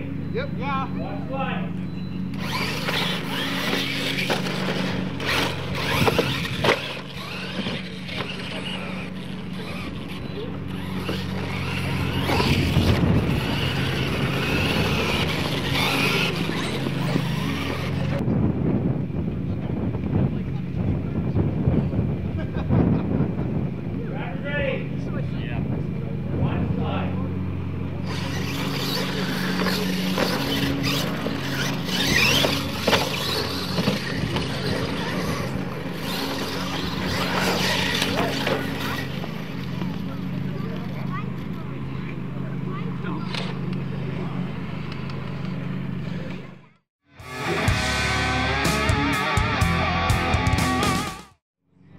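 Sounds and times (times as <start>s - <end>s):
steady low hum: 0.0s - 46.5s
toy truck motors whining: 2.2s - 18.2s, 28.0s - 47.6s.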